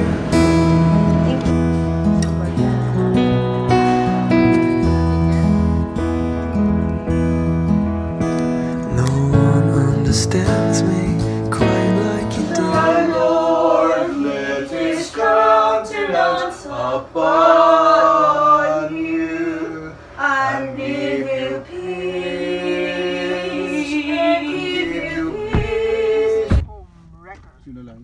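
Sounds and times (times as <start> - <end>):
layered voices singing: 8.9 - 26.7.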